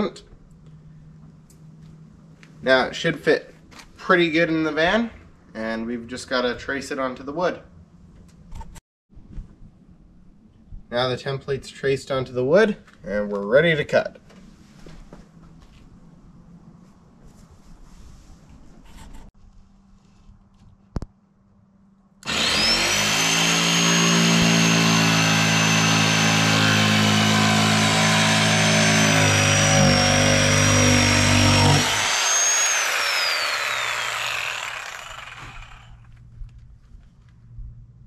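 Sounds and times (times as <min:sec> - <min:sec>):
jigsaw cutting plywood: 0:22.2 - 0:36.1.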